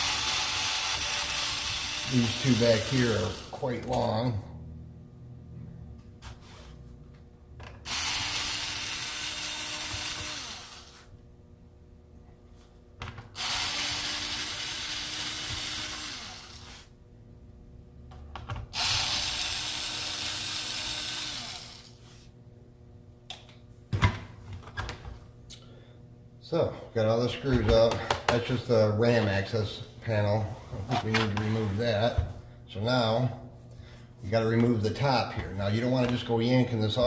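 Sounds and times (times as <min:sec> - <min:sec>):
electric screwdriver motor whine: 0:07.9 - 0:11.1, 0:13.4 - 0:16.9, 0:18.8 - 0:22.0.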